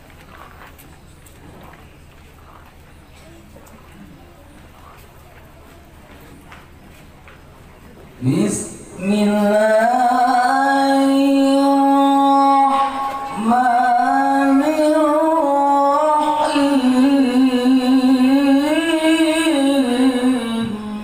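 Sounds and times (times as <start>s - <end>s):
man reciting melodically: 8.2s - 21.0s.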